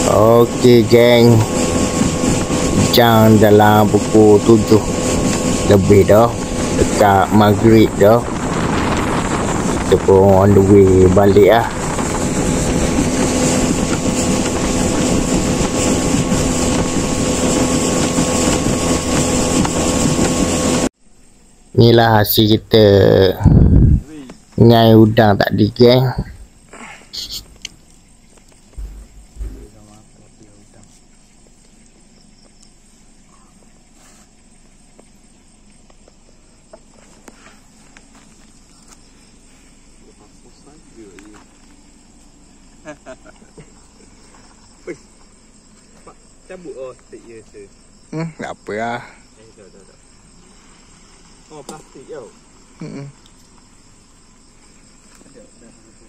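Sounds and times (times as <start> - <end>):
outboard motor humming: 0.0 - 21.0, 25.7 - 36.8
crickets chirring: 0.0 - 56.0
footsteps on dry leaves: 28.8 - 29.7.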